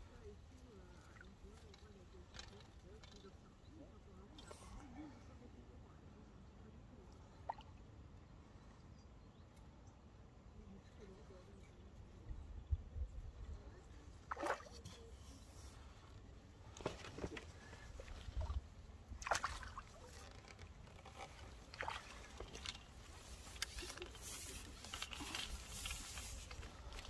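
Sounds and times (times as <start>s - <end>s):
water pouring and dripping from net: 19.2s - 27.0s.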